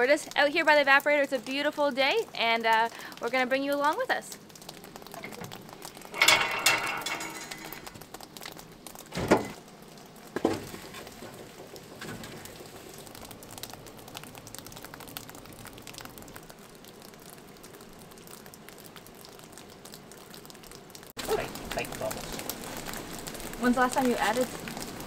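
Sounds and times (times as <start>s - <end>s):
wood fire crackling: 0.0s - 25.0s
logs thudding into firebox: 10.3s - 12.5s.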